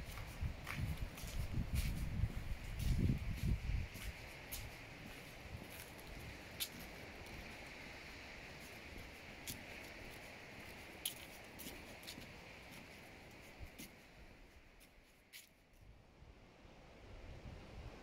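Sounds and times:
soft steady hiss: 0.0s - 18.0s.

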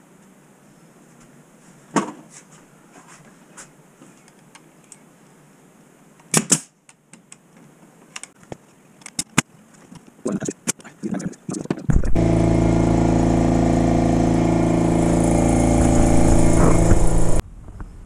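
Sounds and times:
nail gun shots: 6.3s - 6.8s.

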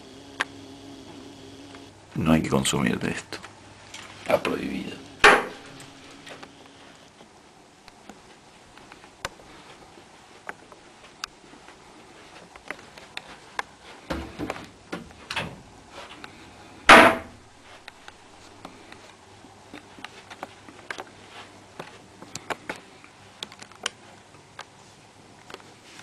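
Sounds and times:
small clicks and knocks: 23.4s - 24.0s.

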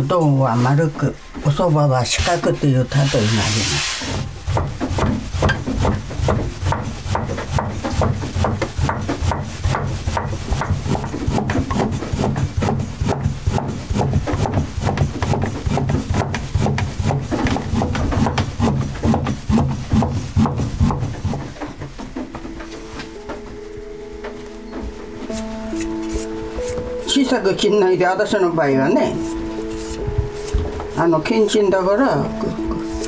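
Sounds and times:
knife chopping dough on wooden board: 4.0s - 21.8s.

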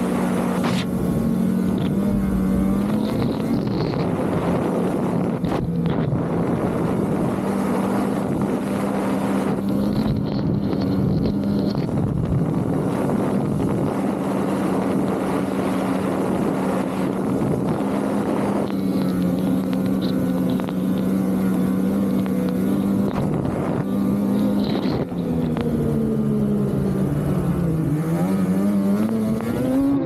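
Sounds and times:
snowmobile engine running: 0.0s - 30.0s
wind noise on microphone: 0.0s - 30.0s.

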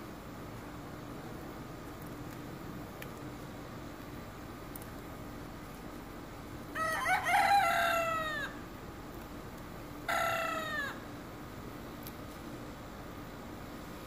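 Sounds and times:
rooster crowing: 6.7s - 8.6s, 10.1s - 11.1s.

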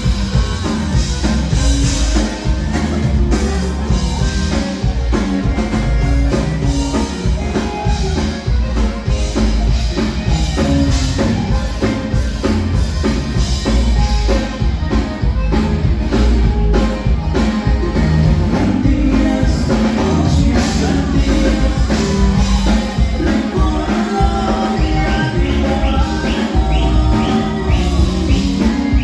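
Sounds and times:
accordion melody: 0.0s - 29.0s
bass: 0.0s - 29.0s
drum kit beat: 0.0s - 29.0s
person singing: 17.3s - 29.0s.

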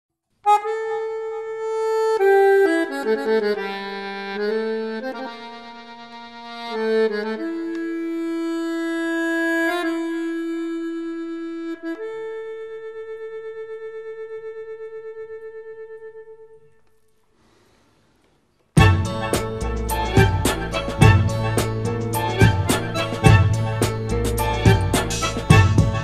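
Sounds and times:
reedy background music: 18.8s - 26.0s.

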